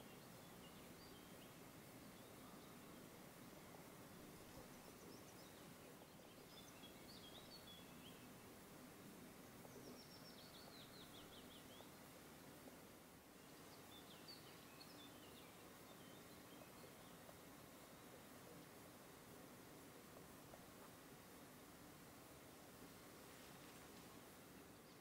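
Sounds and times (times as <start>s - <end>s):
faint steady hiss: 0.0s - 25.0s.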